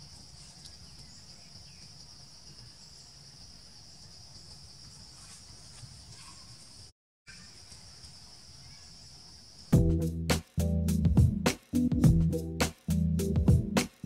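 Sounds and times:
insects droning: 0:00.0 - 0:09.8.

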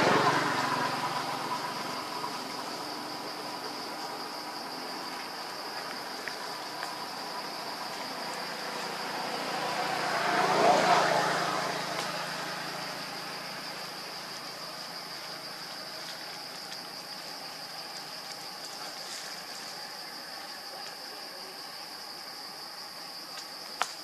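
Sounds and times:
vehicle passing by: 0:00.0 - 0:16.4
high-pitched insect drone: 0:00.0 - 0:23.3.

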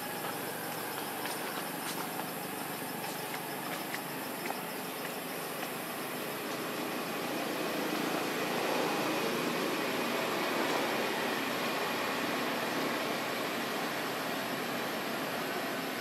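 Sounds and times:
faint ticks: 0:00.2 - 0:05.9.

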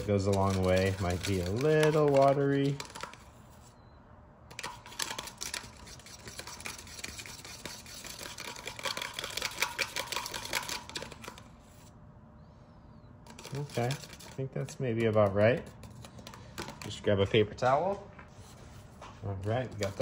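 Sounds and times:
metal spoon stirring in plastic cup: 0:00.0 - 0:03.7, 0:04.5 - 0:11.5, 0:13.2 - 0:17.6, 0:19.4 - 0:20.0.

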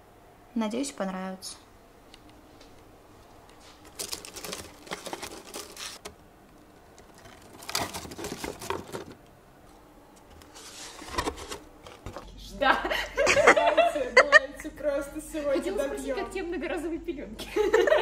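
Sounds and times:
packing paper crinkling in box: 0:03.6 - 0:09.2.

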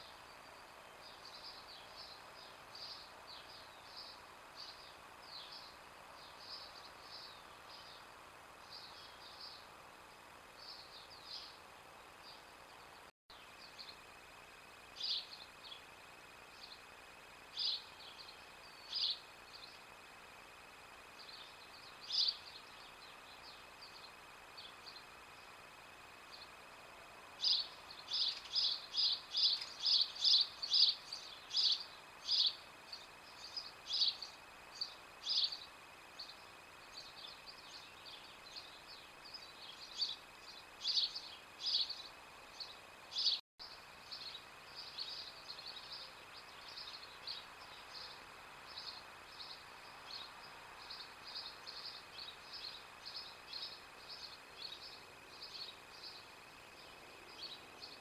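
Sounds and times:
small bird chirping: 0:00.0 - 0:09.8, 0:10.5 - 0:58.0.

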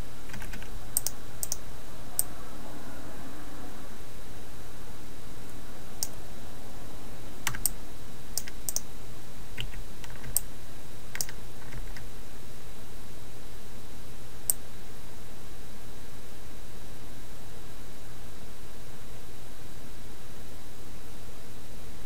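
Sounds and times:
recording hiss and hum: 0:00.0 - 0:22.0
keyboard and mouse clicks: 0:00.3 - 0:01.6, 0:07.5 - 0:07.8, 0:08.4 - 0:08.8, 0:09.6 - 0:10.5, 0:11.1 - 0:12.0.

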